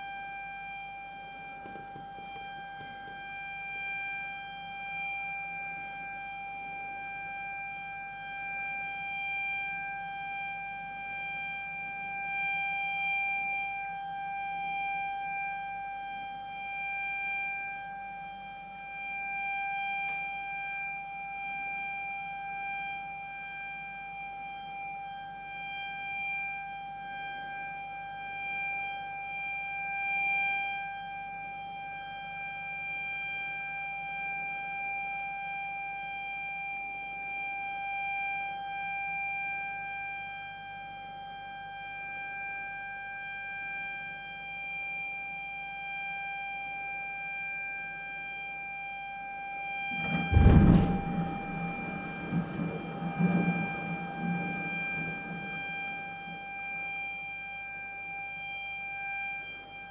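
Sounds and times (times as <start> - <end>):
warning siren: 0.0 - 59.9
rock blast boom: 50.0 - 56.1.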